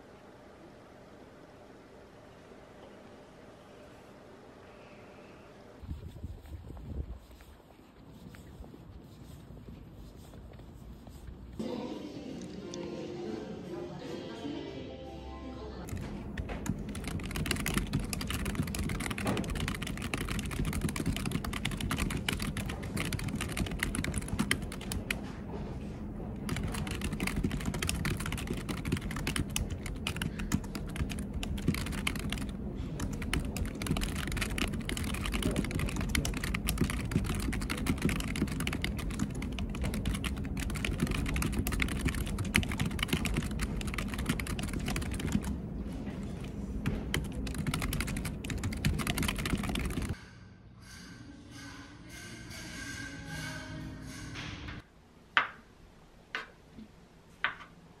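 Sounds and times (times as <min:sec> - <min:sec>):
fast typing on keyboard: 0:15.9 - 0:25.2, 0:26.4 - 0:45.7, 0:46.4 - 0:50.2.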